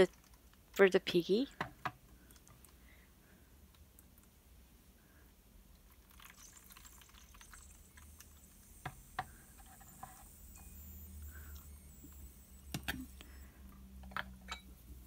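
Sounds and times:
faint room hiss: 0.0s - 15.0s.

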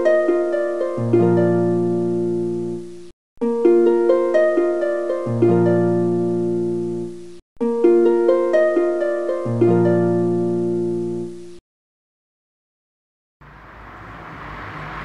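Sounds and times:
plucked notes over low chord: 0.0s - 11.6s.

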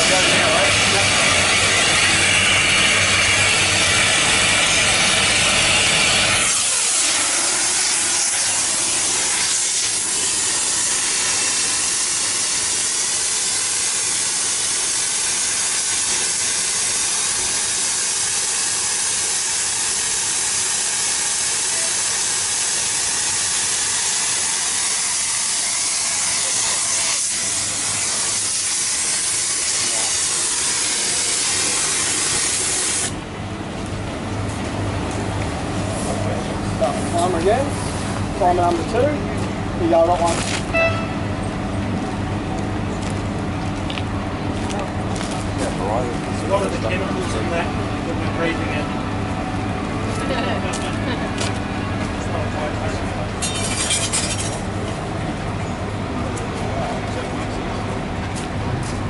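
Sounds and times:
torch flame rushing: 0.0s - 39.0s.

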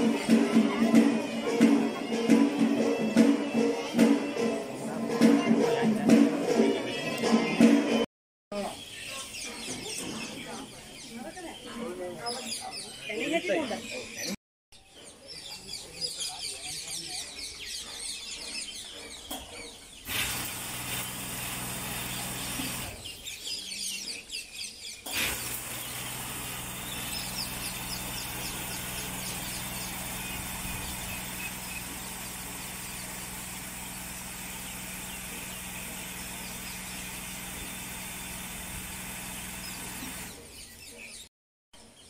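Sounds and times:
pump humming: 20.1s - 23.0s, 25.1s - 40.4s
nozzles spraying mist: 20.1s - 23.1s, 25.0s - 40.4s.

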